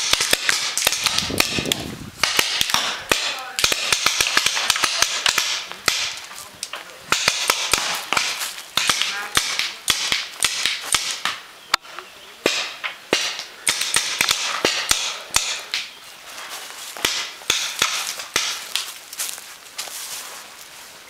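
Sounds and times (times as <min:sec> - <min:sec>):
paintball markers firing pops: 0:00.0 - 0:11.4, 0:12.5 - 0:15.9.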